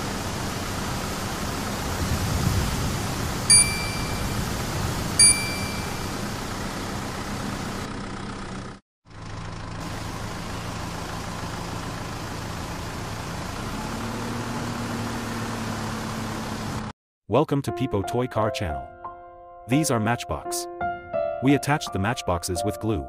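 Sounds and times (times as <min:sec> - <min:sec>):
bell-like ding: 0:03.5 - 0:04.5, 0:05.2 - 0:06.1.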